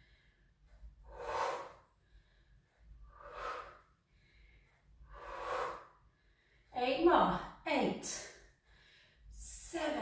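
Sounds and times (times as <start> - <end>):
woman breathing out hard: 5.1 - 6.0.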